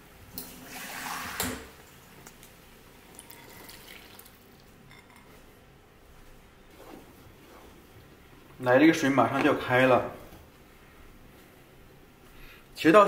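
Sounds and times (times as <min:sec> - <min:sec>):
water pouring and splashing into pot: 0:00.5 - 0:01.8, 0:03.0 - 0:04.8.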